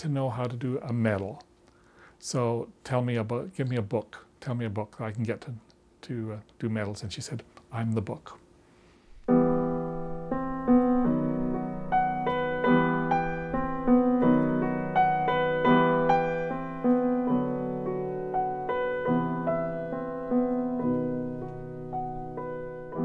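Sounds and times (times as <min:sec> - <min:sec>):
piano music: 0:09.3 - 0:23.0.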